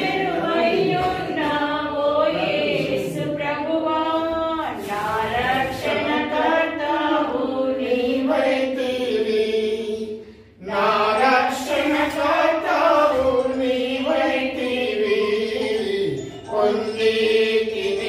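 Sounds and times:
voices singing a hymn: 0.0 - 18.0.

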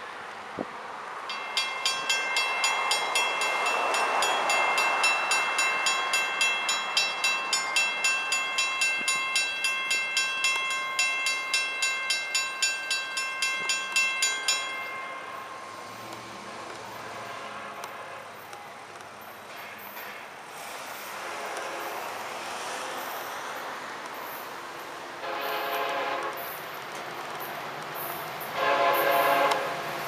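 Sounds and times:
railroad crossing bell ringing: 1.3 - 16.1.

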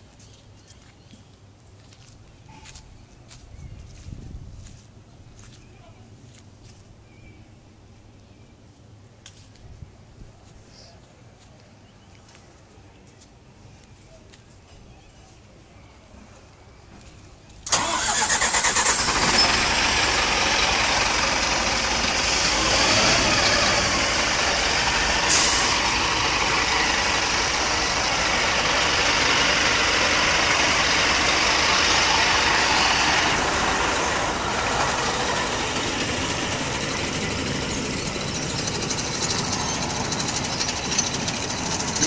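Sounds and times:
diesel engine running: 17.6 - 42.0
air hiss: 25.1 - 26.2.

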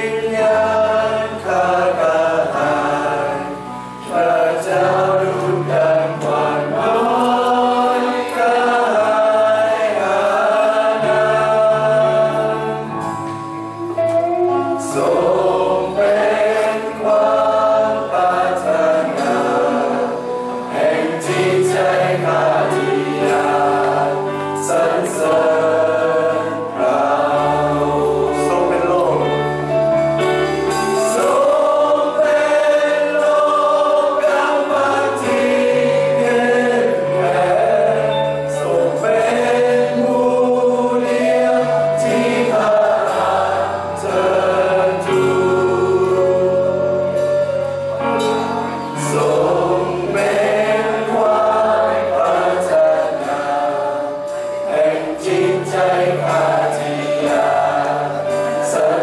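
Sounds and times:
group singing worship song: 0.0 - 59.0
guitars and bass playing: 11.3 - 20.6.

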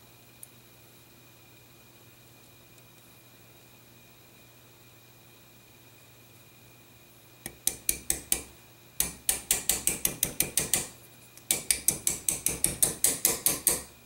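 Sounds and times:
hammer tapping metal pin: 7.5 - 13.9.

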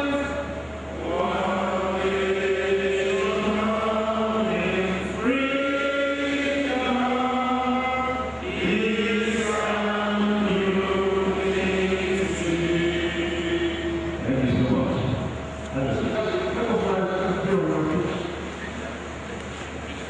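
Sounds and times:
voices singing slow notes: 0.0 - 15.5
steady low hum: 0.0 - 20.0.

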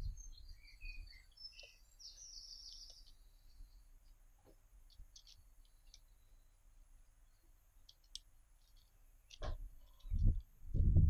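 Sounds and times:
songbirds chirping: 0.0 - 10.7
faint clicks: 4.0 - 6.1, 7.8 - 10.6.

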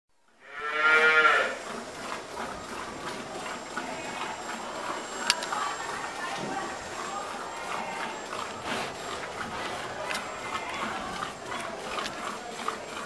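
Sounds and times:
cow mooing: 0.4 - 1.6, 7.5 - 11.4.

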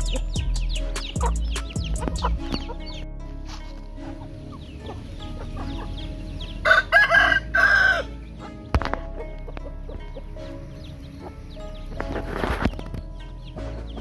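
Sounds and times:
short chirping calls: 0.0 - 3.1
chickens clucking: 0.0 - 14.0
rooster crowing: 6.6 - 8.1.

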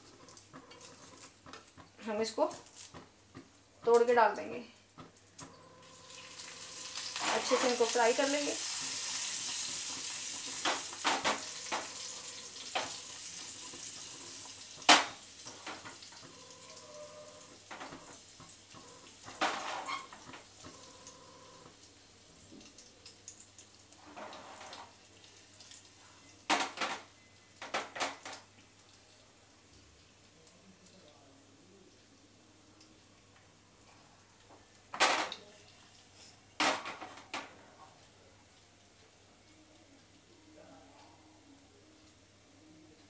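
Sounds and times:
leaves sizzling in hot oil: 5.8 - 31.0.

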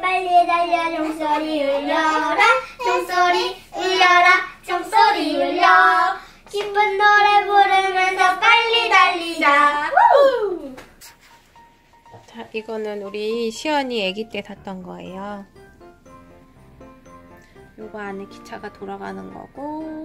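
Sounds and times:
girl singing a carol: 0.0 - 10.0, 19.4 - 20.0.

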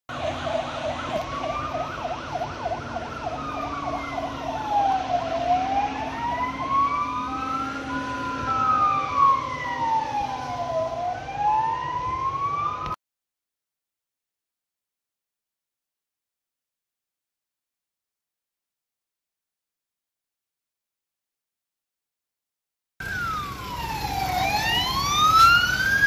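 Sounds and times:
fast yelp siren: 0.1 - 13.0, 23.0 - 26.0
two-tone hi-lo siren: 0.1 - 13.0, 23.0 - 26.0
wailing siren: 0.1 - 13.0, 23.0 - 26.0.

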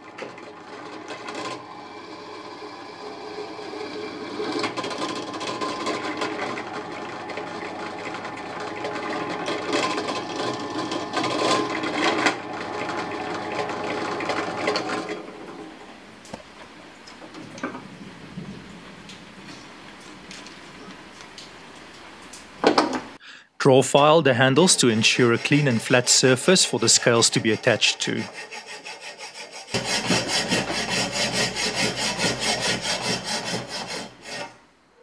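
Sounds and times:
drill bit grinding steel: 0.0 - 15.8, 23.6 - 34.7
drill press motor hum: 0.0 - 16.4, 29.6 - 34.6.

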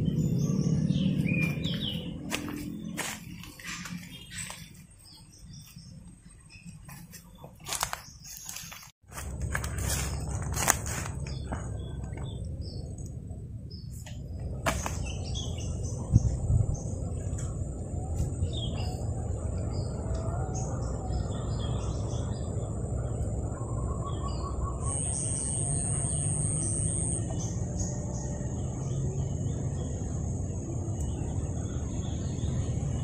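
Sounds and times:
wild birds chirping: 0.0 - 33.0
low steady rumble: 9.1 - 33.0
thin high-pitched tone: 24.8 - 27.2.

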